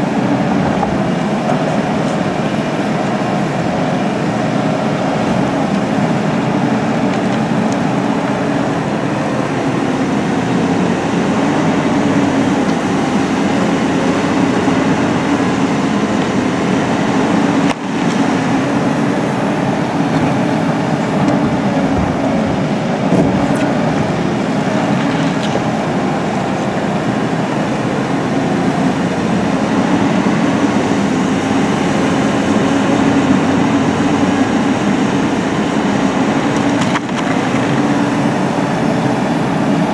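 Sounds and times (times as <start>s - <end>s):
excavator engine and hydraulics: 0.0s - 39.9s.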